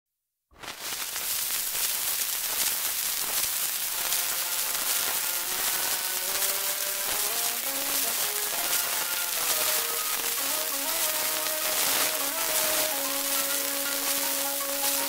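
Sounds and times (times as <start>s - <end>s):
record surface crackle and hiss: 0.5s - 15.0s
faint band music: 4.1s - 15.0s.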